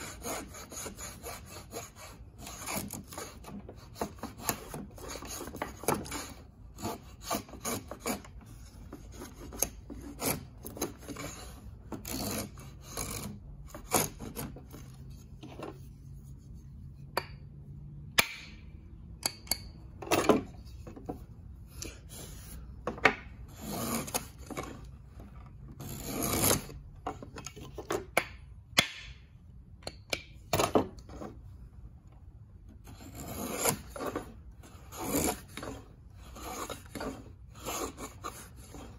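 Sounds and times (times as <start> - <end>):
plane shaving wood: 0.0 - 15.2, 23.5 - 26.8, 32.9 - 38.9.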